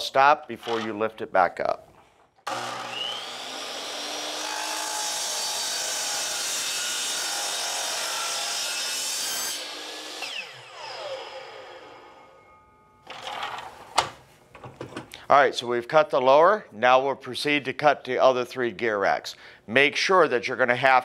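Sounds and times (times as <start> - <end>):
chop saw cutting metal: 2.5 - 12.5.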